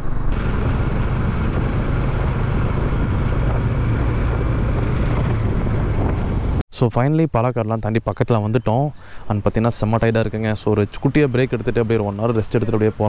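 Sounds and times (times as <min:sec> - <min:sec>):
motorcycle engine running: 0:00.0 - 0:06.6
wind and road noise: 0:00.0 - 0:13.0.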